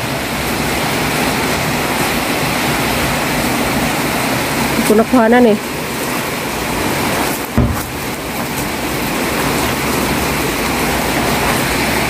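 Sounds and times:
heavy rain: 0:00.0 - 0:12.0
dull thump: 0:07.5 - 0:08.1.

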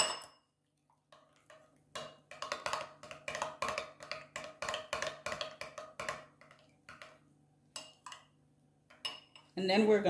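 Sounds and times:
spoon clinking against glass bowl: 0:00.0 - 0:00.5, 0:08.9 - 0:09.5.

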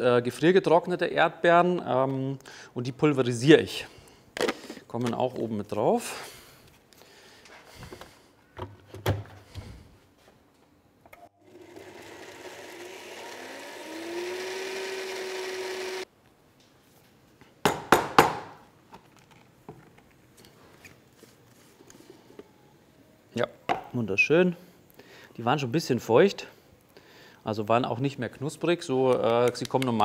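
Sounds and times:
blender motor grinding: 0:11.4 - 0:16.1.

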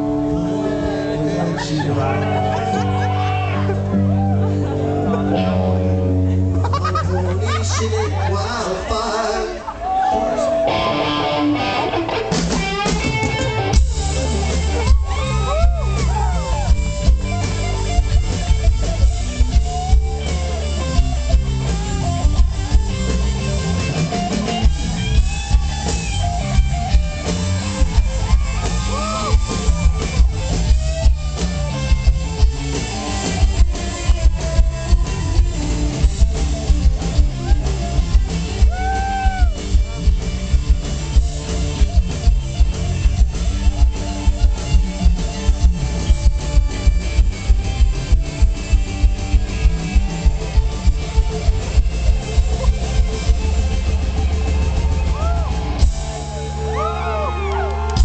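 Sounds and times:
electric guitar lead bending notes: 0:00.0 - 0:58.0
heavy bass: 0:00.0 - 0:58.0
drum beat: 0:12.3 - 0:56.8.

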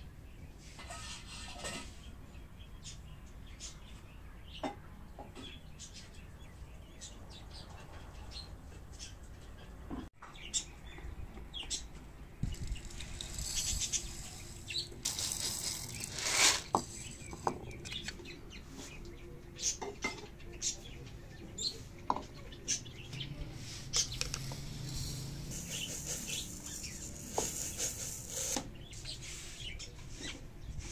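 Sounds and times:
small birds chirping: 0:00.0 - 0:30.9
hissing rustle: 0:12.4 - 0:17.3, 0:23.6 - 0:29.7.

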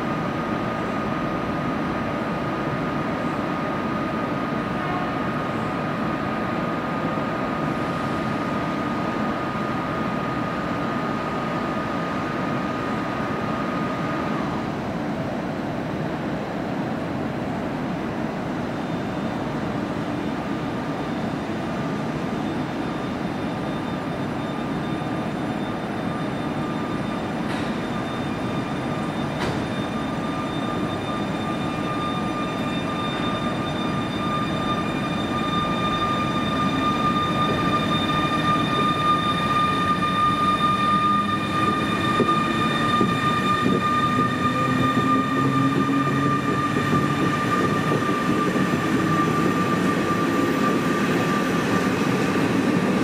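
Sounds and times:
electric locomotive hum: 0:00.0 - 0:53.0
high whining tones: 0:22.2 - 0:53.0.

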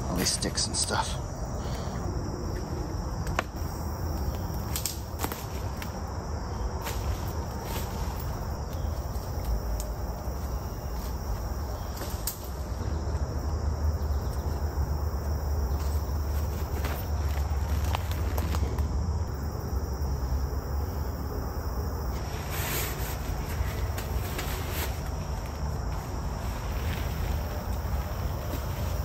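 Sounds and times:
insects chirring: 0:00.0 - 0:29.0
leaves rustling: 0:02.4 - 0:29.0
sticks snapping: 0:04.2 - 0:06.0, 0:11.9 - 0:12.6.

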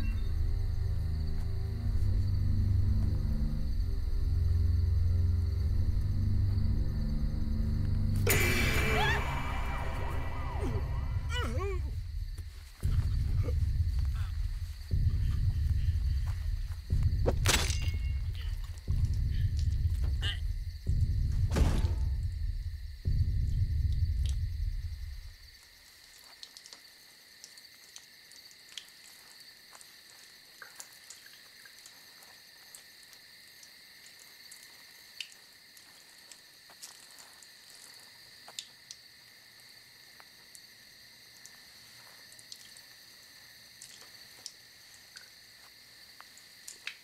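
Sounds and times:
deep low rumble: 0:00.0 - 0:25.4
crickets chirping: 0:00.0 - 0:47.0.

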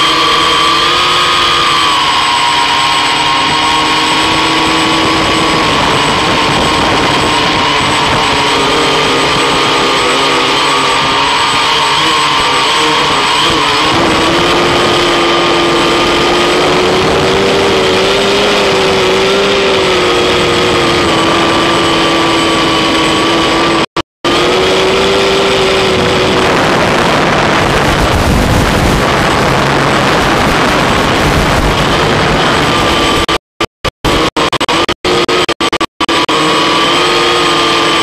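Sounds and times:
drone motors whining: 0:00.0 - 0:38.0.

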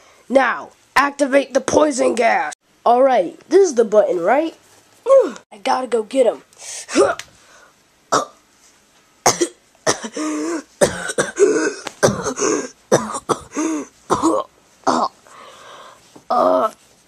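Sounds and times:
person coughing and choking: 0:08.1 - 0:08.4, 0:09.2 - 0:15.2.

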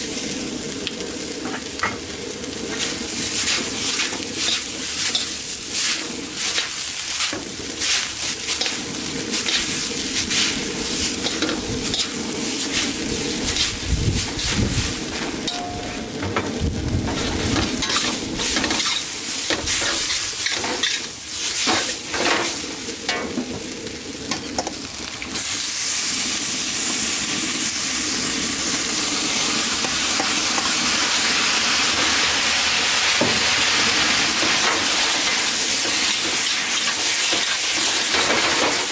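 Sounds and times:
loud steady hiss in a wok: 0:00.0 - 0:38.9
noodles sizzling in a wok: 0:00.0 - 0:38.9
metal utensils scraping a wok: 0:02.7 - 0:16.5, 0:17.2 - 0:22.6, 0:34.4 - 0:38.9.

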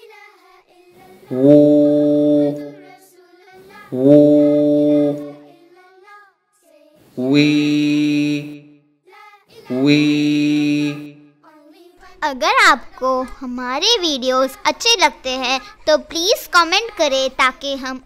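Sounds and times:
person chanting syllables: 0:01.0 - 0:03.0, 0:03.6 - 0:05.5, 0:07.0 - 0:08.6, 0:09.6 - 0:11.2.

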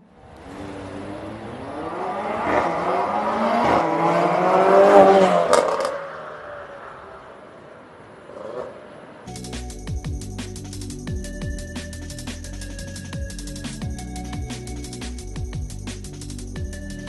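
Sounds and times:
car accelerating past: 0:00.2 - 0:07.6.

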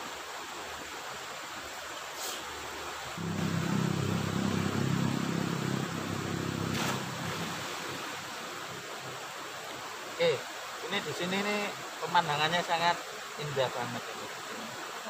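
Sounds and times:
stream rushing: 0:00.0 - 0:15.0
engine droning: 0:03.2 - 0:08.8.

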